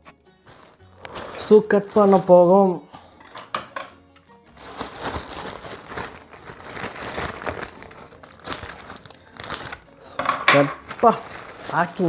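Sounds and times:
faint background music: 0.0 - 12.0
plastic packaging crinkling: 0.5 - 2.6, 4.5 - 12.0.

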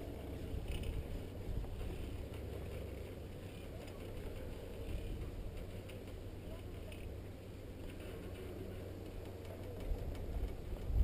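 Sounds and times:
chairlift running: 0.0 - 11.0
wind buffeting microphone: 0.1 - 3.3, 8.2 - 11.0.

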